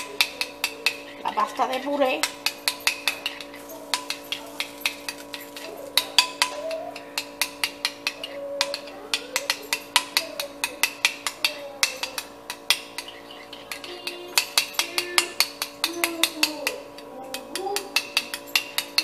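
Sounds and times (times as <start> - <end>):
spoon clinking against ceramic bowl: 0.0 - 19.0
steady hum: 0.0 - 19.0.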